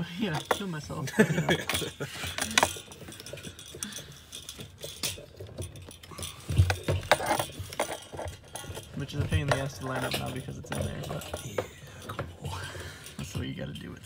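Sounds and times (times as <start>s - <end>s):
plastic and metal parts clicking: 1.5s - 12.4s.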